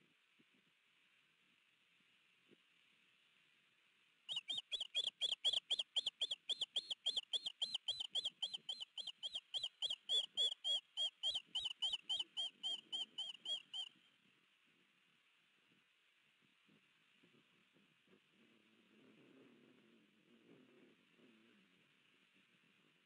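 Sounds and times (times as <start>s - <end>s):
osprey chirping: 4.3s - 13.9s.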